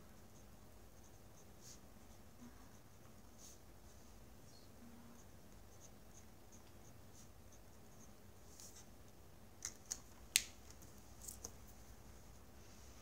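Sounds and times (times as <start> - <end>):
pen scratching on paper: 0.2 - 3.6, 5.2 - 8.9.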